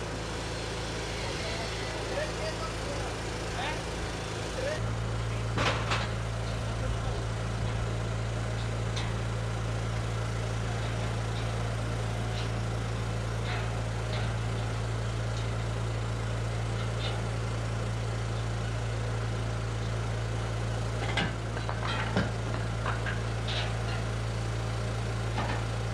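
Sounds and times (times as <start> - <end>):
engine humming steadily: 0.0 - 25.9.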